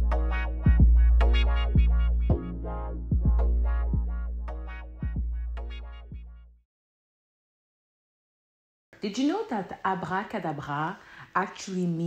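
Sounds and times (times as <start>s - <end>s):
synthesizer chords: 0.0s - 6.4s
deep sustained bass: 0.0s - 6.6s.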